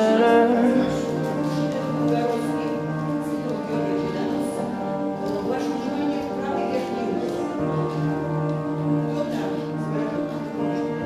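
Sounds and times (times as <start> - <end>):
music with long held chords: 0.0 - 11.0.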